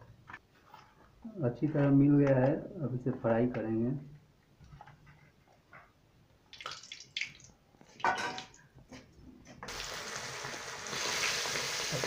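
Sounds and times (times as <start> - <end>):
hot oil sizzling: 9.6 - 12.0.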